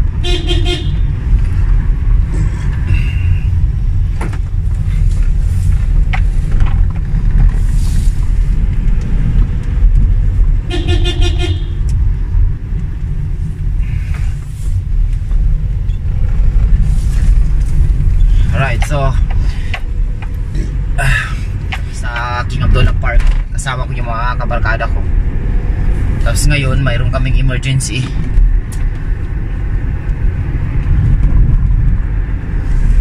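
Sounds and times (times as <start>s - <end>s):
road and engine rumble: 0.0s - 33.0s
car horn: 0.2s - 1.1s, 10.6s - 11.9s.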